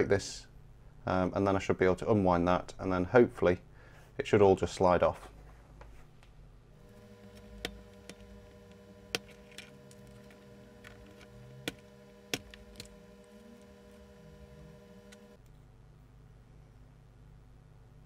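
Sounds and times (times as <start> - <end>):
faint steady hum: 0.0 - 18.0
blade clicking on dried glue: 6.9 - 14.1.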